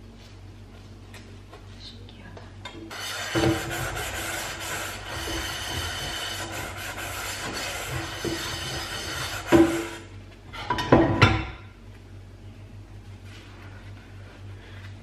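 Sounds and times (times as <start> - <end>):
sponge scrubbing saucepan: 2.9 - 10.0.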